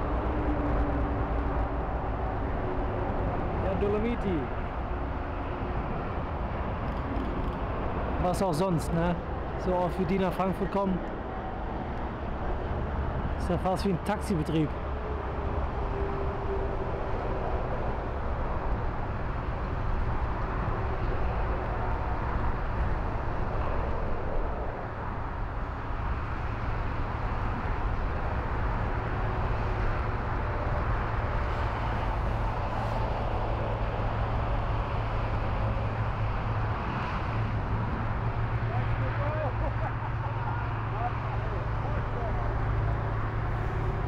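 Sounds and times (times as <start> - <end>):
distant jet airliner roar: 0.0 - 44.0.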